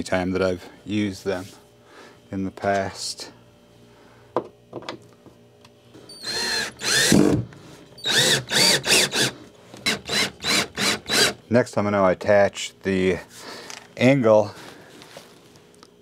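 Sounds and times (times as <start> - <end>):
cordless drill motor whining: 6.1 - 7.4, 8.0 - 11.4.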